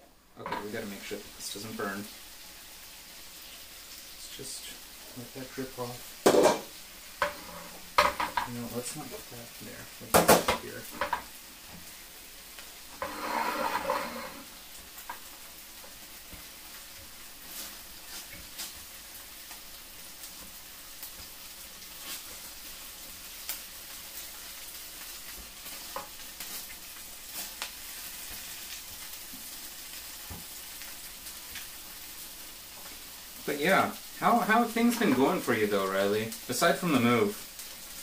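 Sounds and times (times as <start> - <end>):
food sizzling in a pan: 0.0 - 38.0
spatula tapping a pan: 8.0 - 8.5.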